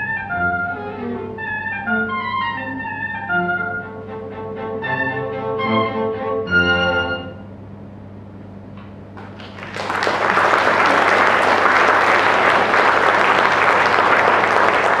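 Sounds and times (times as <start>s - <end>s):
audience applauding: 9.2s - 15.0s.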